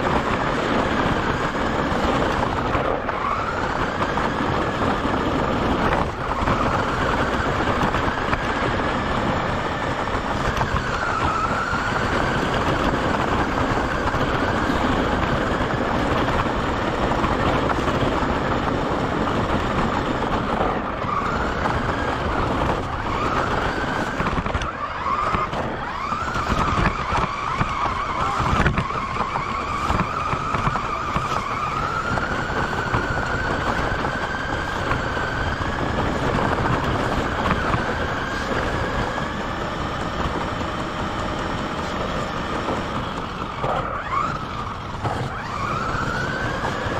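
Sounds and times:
tyres rolling on gravel: 0.0s - 46.9s
toy car motor whining: 19.4s - 46.9s.

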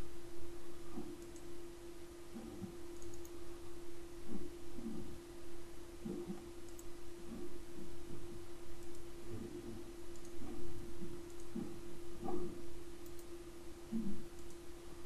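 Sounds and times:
low electrical hum: 0.0s - 15.0s
computer mouse clicking: 1.0s - 1.5s, 2.9s - 3.4s, 6.1s - 6.9s, 8.8s - 9.1s, 10.1s - 12.4s, 13.0s - 13.4s, 14.3s - 14.6s.

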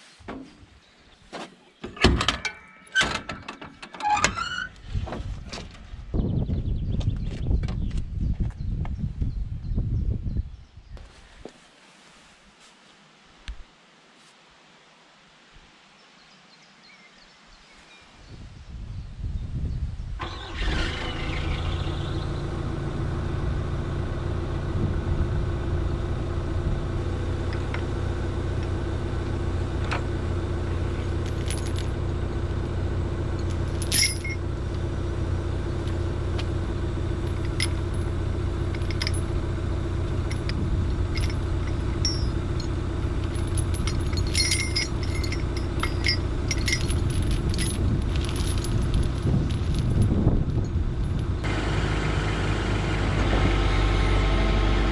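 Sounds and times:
excavator diesel engine idling: 20.2s - 54.9s
steel chain clinking and rattling: 30.9s - 32.1s, 33.2s - 34.5s, 37.1s - 51.5s
sharp metal clank: 41.2s - 49.0s.

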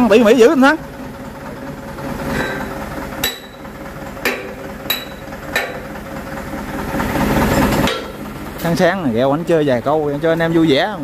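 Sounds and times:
steady engine hum: 0.0s - 11.0s
hammer striking metal: 2.3s - 6.0s, 7.7s - 8.3s.

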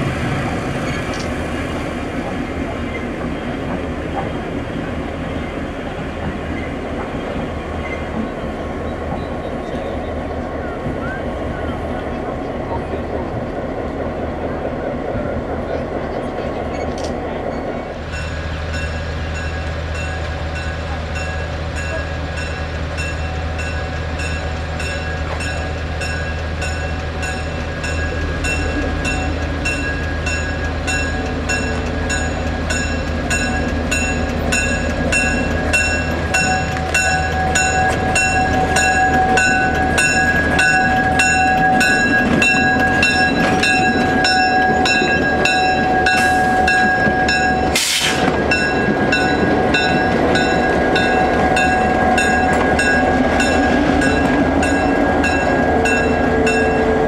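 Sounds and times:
diesel locomotive engine hum: 0.0s - 57.0s
locomotive bell ringing: 18.0s - 57.0s.

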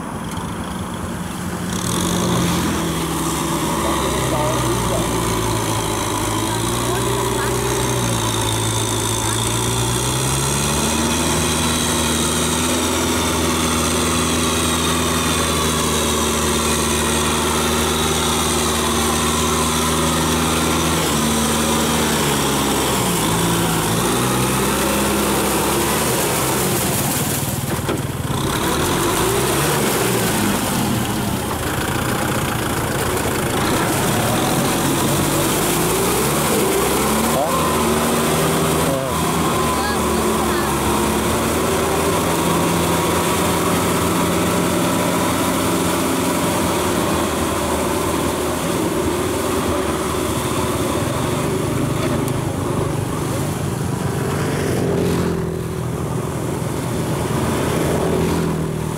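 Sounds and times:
tractor diesel engine under load: 0.0s - 58.9s.

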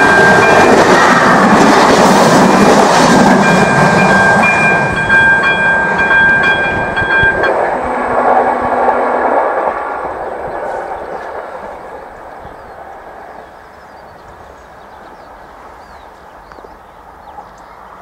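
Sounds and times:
crossing warning bell: 0.0s - 9.8s
train wheels clattering on rails: 0.0s - 17.7s.

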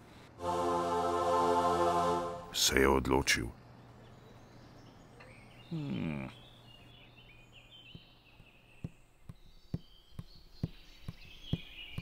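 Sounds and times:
faint birdsong chirps: 2.5s - 12.0s.

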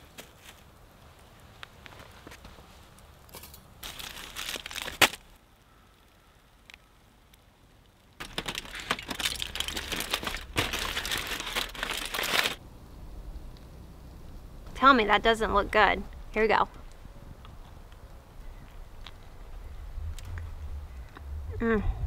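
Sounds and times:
aluminium foil crinkling: 3.3s - 5.4s, 8.2s - 12.6s
foil snapping: 3.8s - 5.3s, 8.2s - 12.6s.

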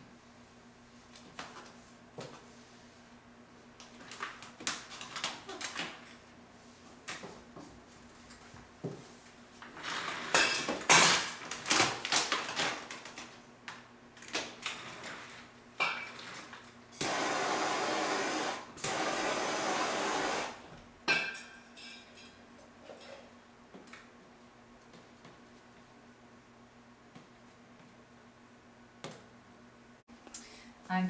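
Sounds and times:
heat gun hissing: 17.0s - 20.6s.

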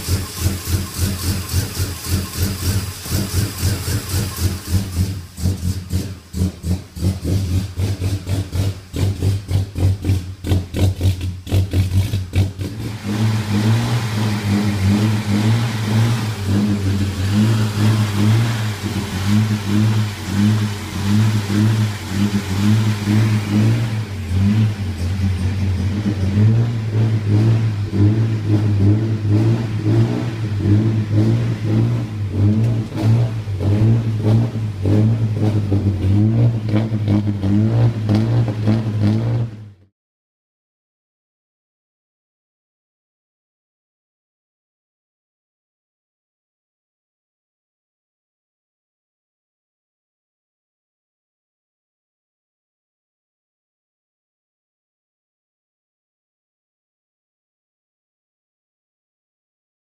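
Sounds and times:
car engine running: 0.0s - 39.8s.

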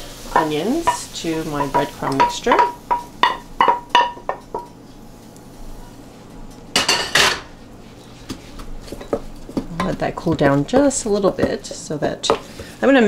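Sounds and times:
frying pan knocking against bowl: 0.4s - 4.7s, 9.0s - 12.4s.

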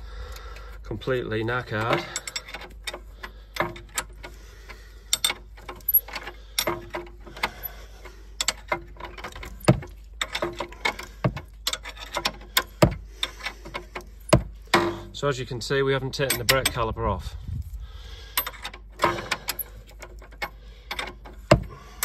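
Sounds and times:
ratcheting spanner clicking: 1.8s - 7.8s, 18.4s - 22.0s.

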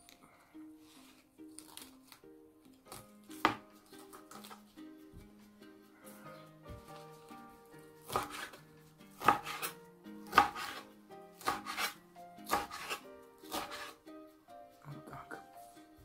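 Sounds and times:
knife chopping lettuce on board: 2.9s - 4.6s, 8.0s - 8.6s, 9.2s - 14.0s.

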